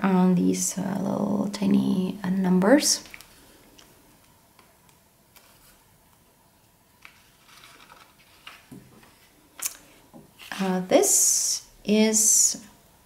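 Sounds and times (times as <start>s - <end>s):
paper pages turning: 4.6s - 6.2s, 7.0s - 10.7s.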